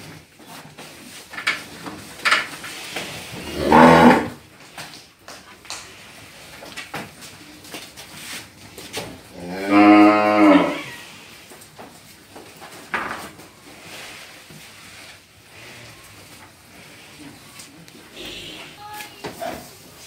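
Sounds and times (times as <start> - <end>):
cow mooing: 3.4 - 4.4, 9.4 - 11.0.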